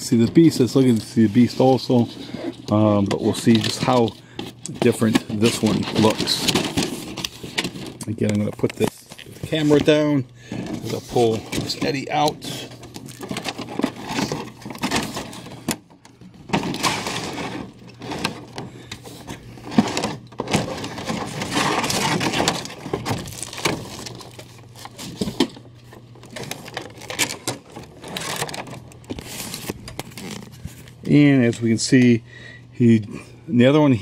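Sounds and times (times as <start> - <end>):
cardboard and plastic packaging rustling: 0.0 - 31.8.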